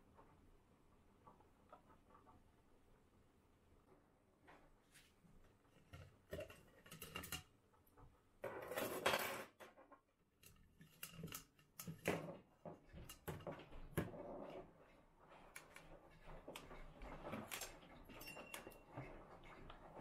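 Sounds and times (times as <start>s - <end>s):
metal whisk attachments clinking: 17.5s - 19.7s.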